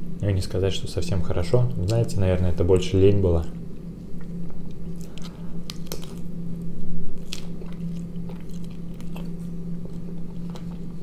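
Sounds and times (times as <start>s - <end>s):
steady low hum: 0.0s - 11.0s
person chewing food: 4.2s - 6.3s, 7.2s - 11.0s.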